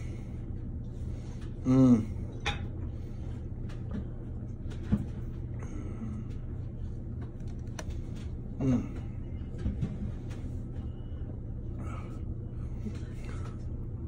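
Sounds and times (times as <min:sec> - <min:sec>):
room hum: 0:00.0 - 0:14.0
man grunting: 0:01.6 - 0:02.2.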